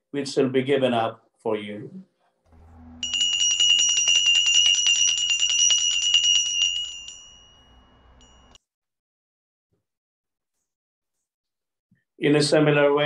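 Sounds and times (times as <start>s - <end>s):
altar bells jingling: 2.6s - 8.6s.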